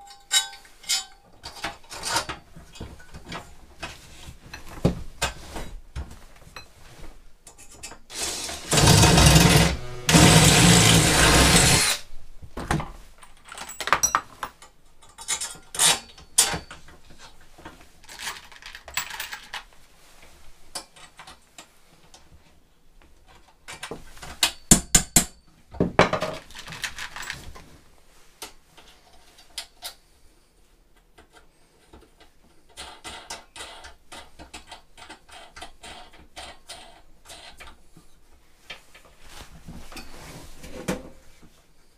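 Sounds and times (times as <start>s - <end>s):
tools clinking on steel frame: 0.0s - 2.4s
cordless drill running: 8.1s - 12.0s.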